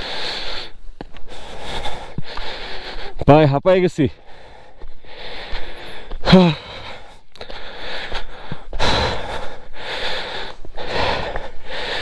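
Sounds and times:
man panting heavily: 0.0 - 12.0
man groaning: 6.2 - 6.7.

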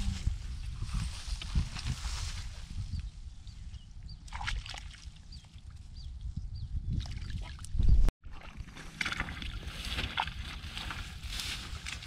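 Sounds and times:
wind rumble on microphone: 0.0 - 8.1.

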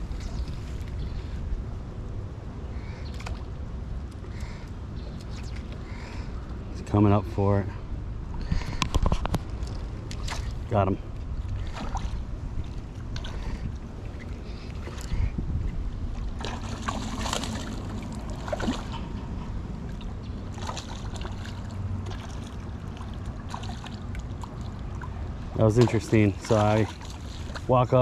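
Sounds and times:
wind rumble on microphone: 0.0 - 28.0
fish splashing at water surface: 16.3 - 19.2, 19.9 - 27.7.

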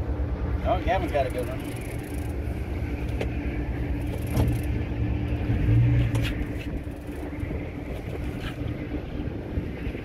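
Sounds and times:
outboard motor idling: 0.0 - 5.5
wind rumbling on microphone: 0.0 - 10.0.

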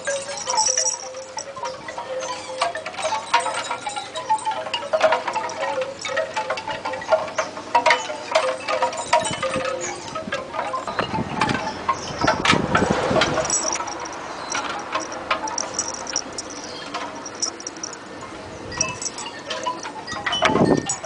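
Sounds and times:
metallic chimes tinkling: 0.0 - 12.4, 13.2 - 21.0
low rustling and scraping: 12.2 - 18.0.

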